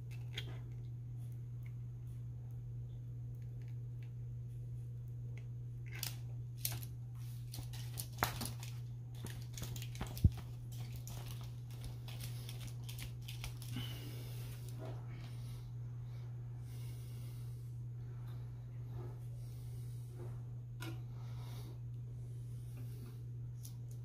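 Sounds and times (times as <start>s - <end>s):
steady low hum: 0.0s - 24.0s
small clicks and rustles: 5.4s - 13.8s.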